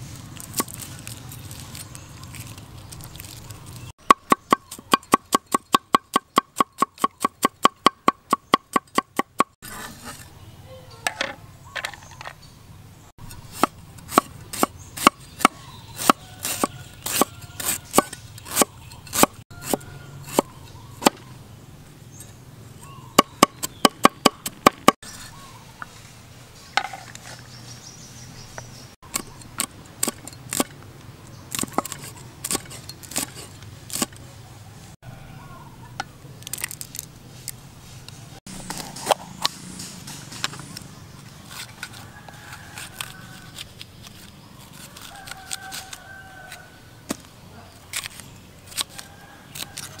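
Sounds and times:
cleaver chopping on wooden board: 13.5 - 21.2, 23.2 - 25.0.

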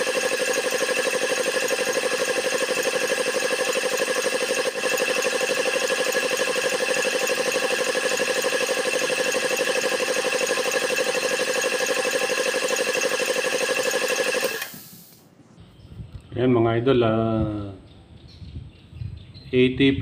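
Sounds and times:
piston air compressor running: 0.0 - 15.2.

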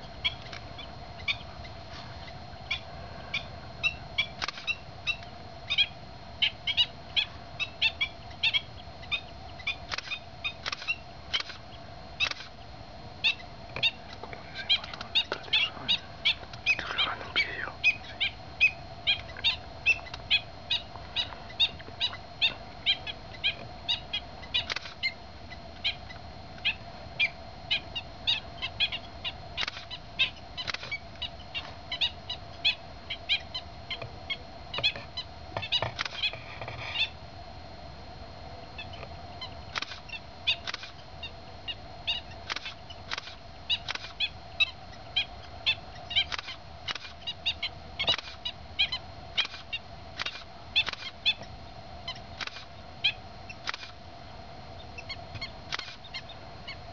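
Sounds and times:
wading birds calling: 0.0 - 37.2
faint steady hum: 0.0 - 56.9.

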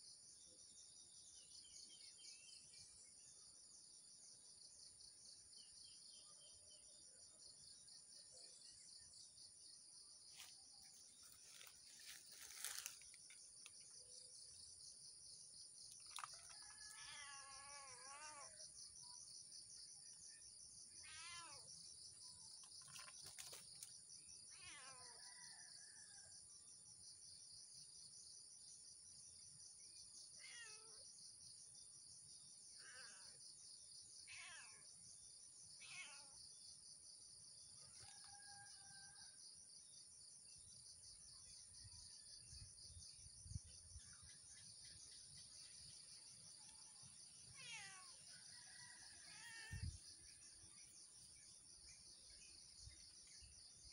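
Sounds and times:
cat meowing: 16.9 - 18.5, 47.6 - 48.1.

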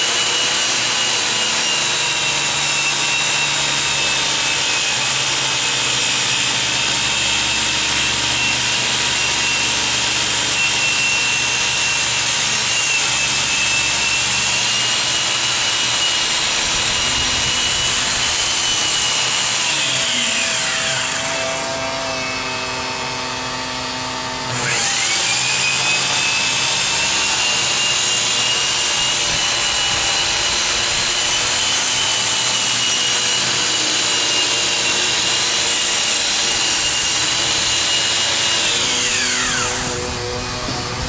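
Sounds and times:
angle grinder grinding steel: 0.0 - 41.0.

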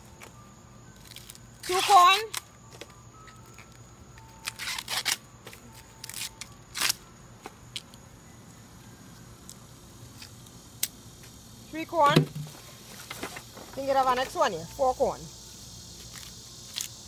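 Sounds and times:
corn husks tearing: 4.4 - 5.2, 6.0 - 7.0.

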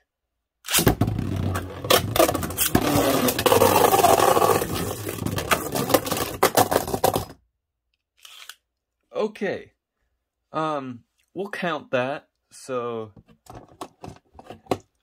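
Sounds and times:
spinning tops whirring scrape: 1.5 - 6.5.

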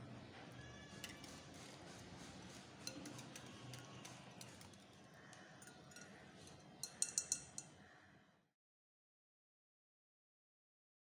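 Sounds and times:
whisk clicking against bowl: 1.0 - 4.8, 5.4 - 7.7
whisk ticking against glass bowl: 5.6 - 7.7.

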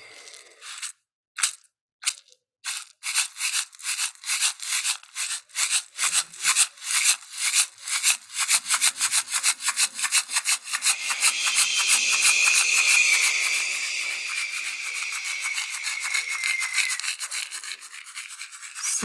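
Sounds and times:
rhythmic rubbing strokes: 6.0 - 19.0.

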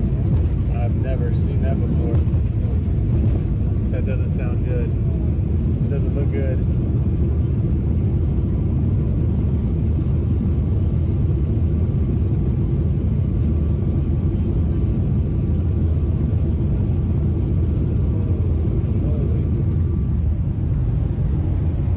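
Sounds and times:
jet engine rumble and rushing air: 0.0 - 21.9
faint cabin voices: 13.8 - 21.9.

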